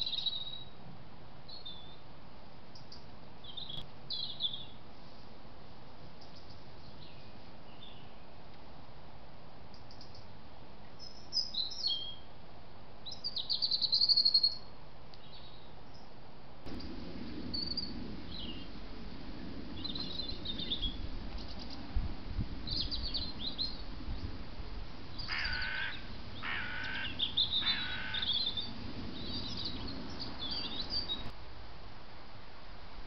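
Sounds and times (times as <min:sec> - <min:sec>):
small birds chirping: 0:00.0 - 0:00.8, 0:13.0 - 0:16.1, 0:16.7 - 0:18.8, 0:19.7 - 0:21.9, 0:22.6 - 0:24.4, 0:25.1 - 0:31.3
harsh crow-like caws: 0:25.2 - 0:28.4.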